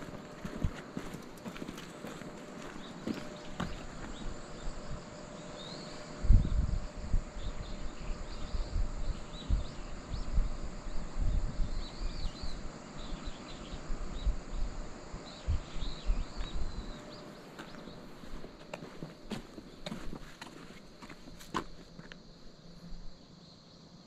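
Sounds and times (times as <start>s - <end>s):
high insect drone: 0.0s - 24.0s
small birds chirping: 0.0s - 24.0s
wind gusts buffeting microphone: 6.0s - 20.2s.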